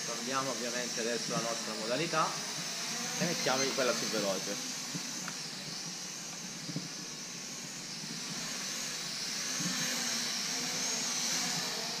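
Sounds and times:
drone propellers whining: 0.0 - 12.0.

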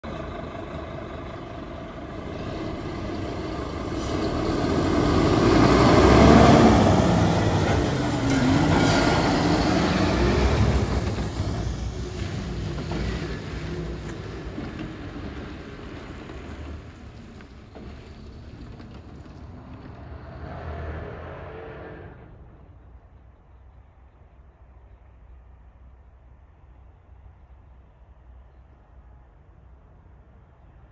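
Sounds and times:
diesel truck passing by: 0.0 - 22.9.

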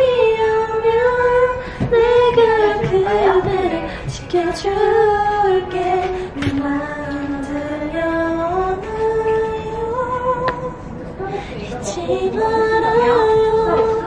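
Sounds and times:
woman singing slow melody: 0.0 - 14.0
singer breathing: 1.6 - 2.0, 3.8 - 4.1, 11.2 - 11.7.

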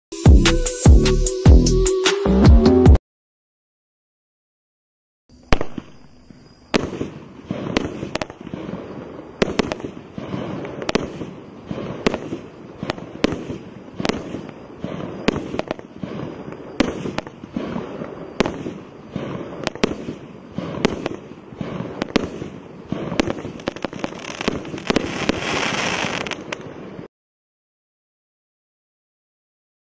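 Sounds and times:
firework bangs: 5.4 - 27.1
firework crackling: 5.4 - 27.1.

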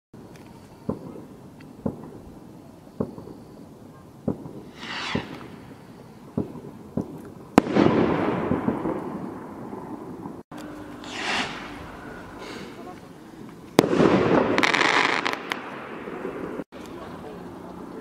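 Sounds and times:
crackling hiss: 0.2 - 18.0
loud firework crack: 0.9 - 2.3, 2.9 - 3.6, 4.2 - 16.7
firework bangs: 0.9 - 3.6, 4.2 - 10.4, 11.0 - 16.7
rocket launch whoosh: 4.6 - 5.8, 11.0 - 12.9.

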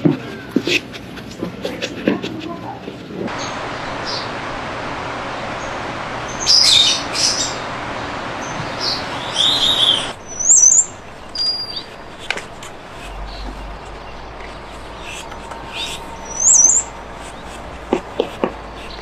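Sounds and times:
warbling bird whistle: 3.3 - 17.6
birds chirping: 3.3 - 19.0
steady hiss: 3.3 - 19.0.

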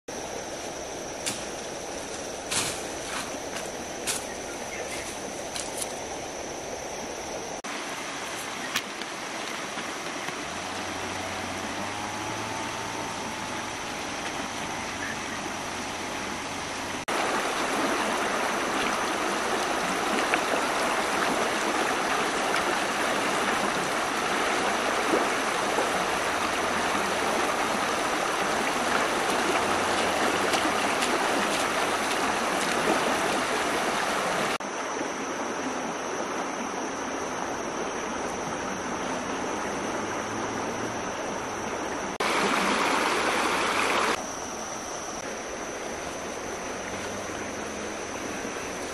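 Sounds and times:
river rushing over rocks: 15.6 - 34.6.

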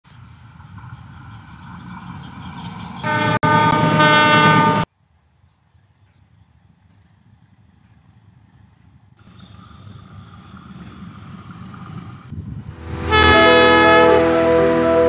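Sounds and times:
train rumble: 0.1 - 4.9, 5.7 - 15.0
locomotive horn chord: 3.0 - 4.9, 12.7 - 15.0
faint outdoor background: 4.8 - 15.0.

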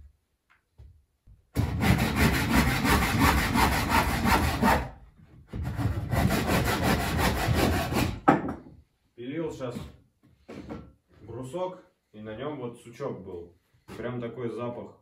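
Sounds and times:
hand saw cutting wood: 1.6 - 8.2.

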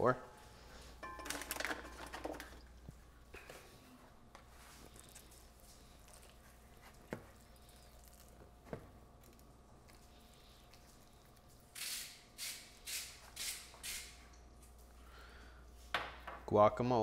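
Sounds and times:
spoon scraping and squishing: 4.8 - 8.5.

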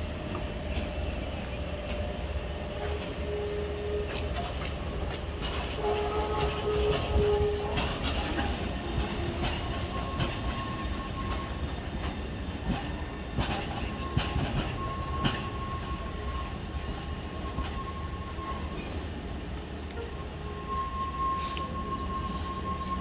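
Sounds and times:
train rumble: 0.0 - 23.0
wheels clicking over rail joints: 4.0 - 16.0.

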